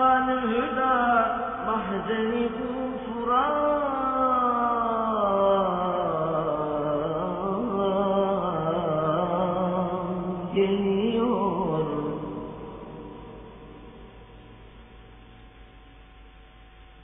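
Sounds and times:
man singing a hymn: 0.0 - 12.2.

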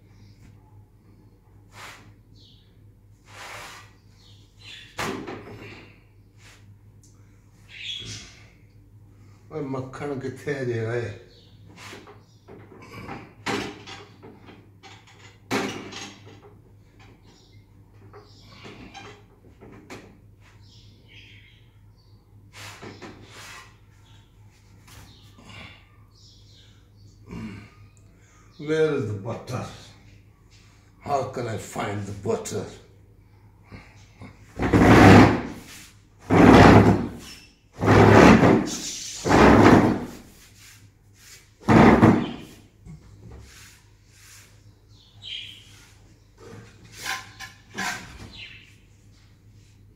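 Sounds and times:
cupboard doors and drawers banging: 34.6 - 35.6, 36.2 - 40.2, 41.6 - 42.6.

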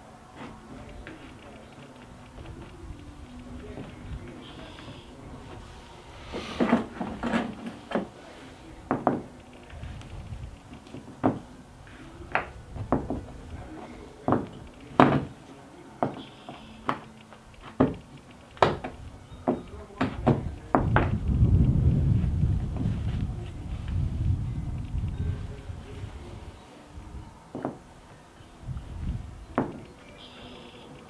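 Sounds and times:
hard plastic clicks and knocks: 14.3 - 15.4, 16.0 - 21.2.

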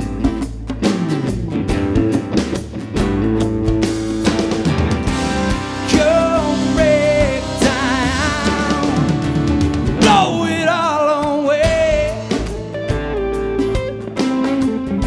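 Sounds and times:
live rock band playing: 0.0 - 15.0
person singing long notes: 5.6 - 9.4, 10.0 - 12.5.

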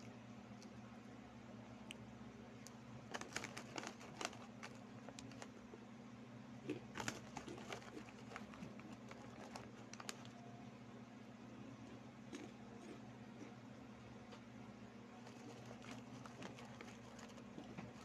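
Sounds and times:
snacks crunching: 2.6 - 5.8, 6.6 - 10.4, 11.9 - 13.6, 15.2 - 18.0
plastic snack bag crinkling: 3.1 - 5.7, 6.7 - 10.4, 15.2 - 18.0.

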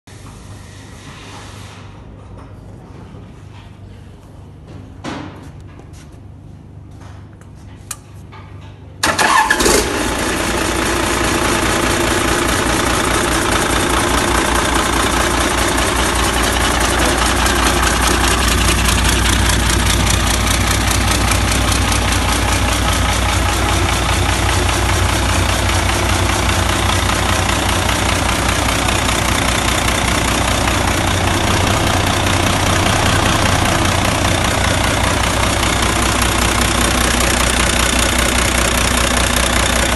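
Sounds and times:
diesel engine starting and idling: 9.0 - 39.9.

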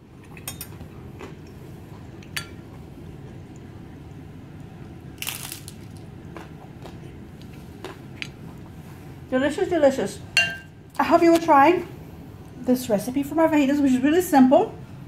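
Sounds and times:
person chewing food: 0.0 - 3.7, 5.2 - 8.8.

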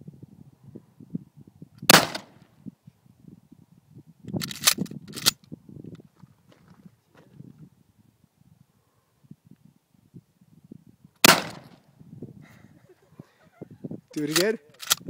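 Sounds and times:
shotgun blast: 1.9 - 2.4, 11.2 - 11.8.

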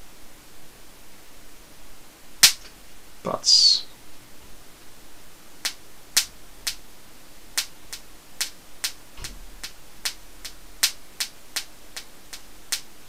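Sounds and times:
high-voltage sparks snapping: 2.4 - 2.7, 5.6 - 6.8, 7.6 - 13.0.

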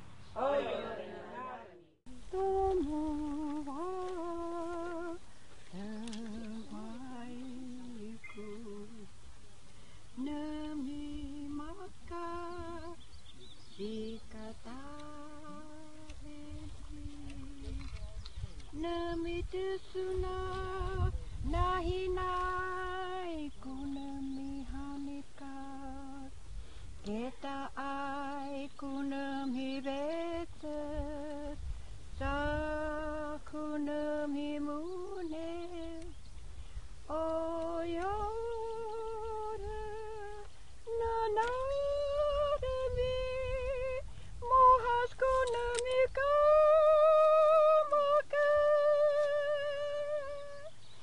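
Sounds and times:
woman singing unaccompanied: 0.4 - 9.3, 10.0 - 26.4, 27.0 - 36.3, 37.0 - 51.0
person humming a slow melody: 2.1 - 9.1, 13.7 - 18.0, 32.2 - 36.2, 37.0 - 50.8
low wind rumble on microphone: 10.0 - 51.0.

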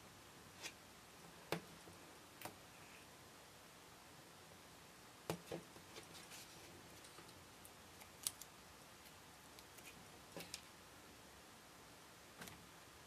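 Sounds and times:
paper-backed fabric rustling: 5.5 - 7.2.

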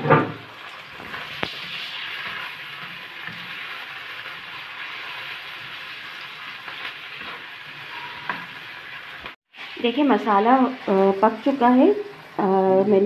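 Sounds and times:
vegetables sizzling in a wok: 0.0 - 13.0
spatula scraping a pan: 0.5 - 9.7.

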